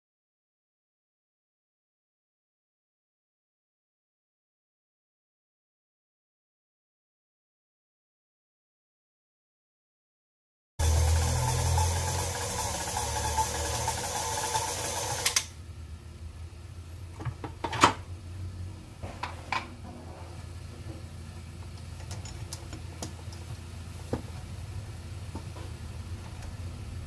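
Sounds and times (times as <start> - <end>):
stand mixer kneading dough: 10.8 - 15.4.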